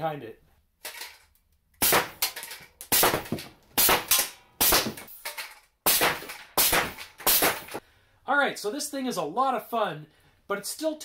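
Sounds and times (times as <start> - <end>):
pneumatic cannon blasts: 1.8 - 2.2, 2.9 - 5.1, 5.9 - 7.8.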